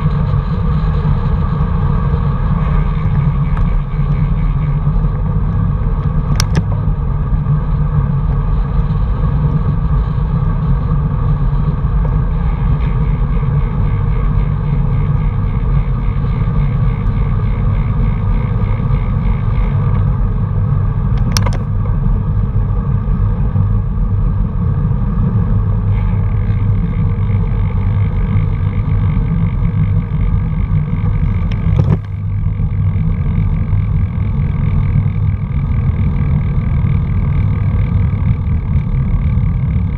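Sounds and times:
vehicle rumble on road: 0.0 - 39.9
sharp click: 6.3 - 6.7, 21.2 - 21.7.

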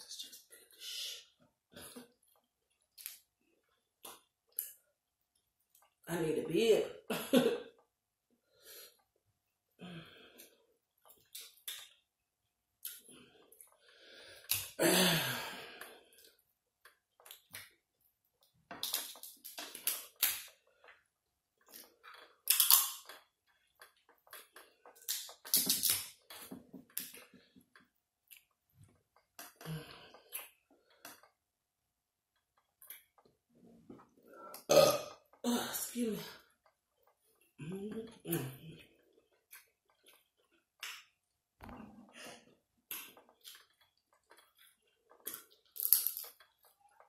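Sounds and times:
chewing and lip-smacking: 10.9 - 12.1, 18.4 - 31.4, 42.8 - 47.0.

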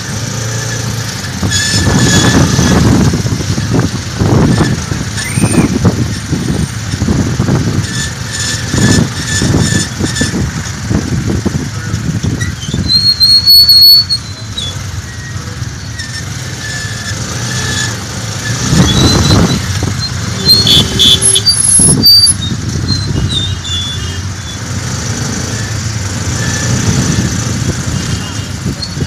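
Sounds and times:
short high-pitched squeals: 0.0 - 3.8, 4.4 - 7.1, 7.8 - 10.6, 12.3 - 29.0
rumble of city traffic: 0.0 - 29.0.

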